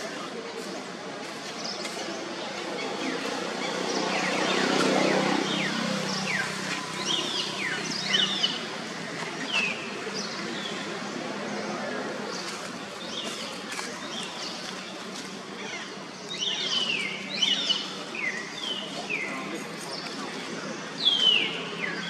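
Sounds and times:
outdoor background noise: 0.0s - 22.0s.

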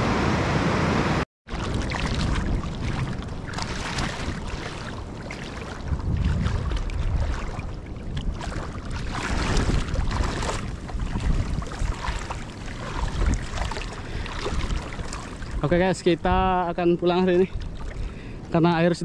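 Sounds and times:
wind buffeting microphone: 0.0s - 19.0s
small waves lapping: 1.5s - 19.0s.

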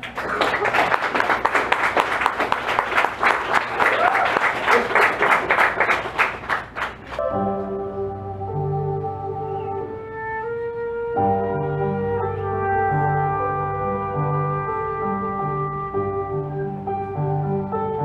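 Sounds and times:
audience applauding: 0.0s - 7.2s
synthesizer chords: 7.2s - 18.0s.

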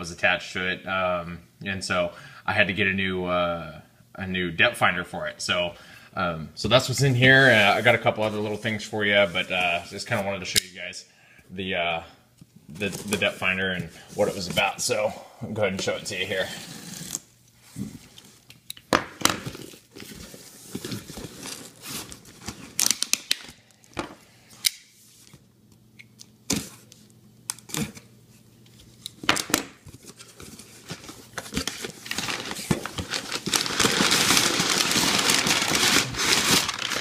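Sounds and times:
packing material rustling: 19.4s - 24.0s, 29.3s - 37.0s.

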